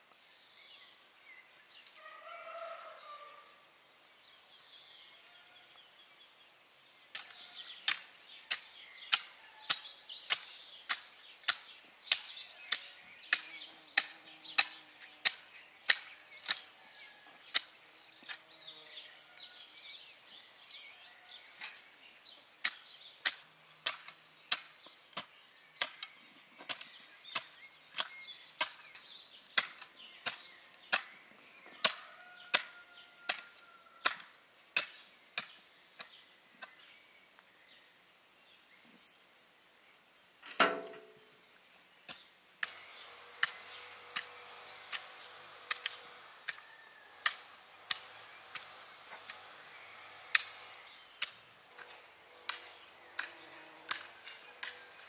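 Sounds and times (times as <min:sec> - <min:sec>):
birds singing: 0:00.0 - 0:55.0
hoe chopping into soil: 0:40.5 - 0:41.2, 0:42.1 - 0:55.0.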